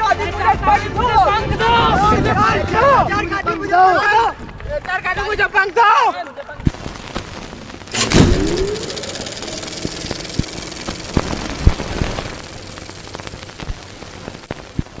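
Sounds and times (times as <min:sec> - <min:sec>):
crackles and pops: 0:06.4 - 0:15.0
film projector whirring: 0:07.9 - 0:14.0.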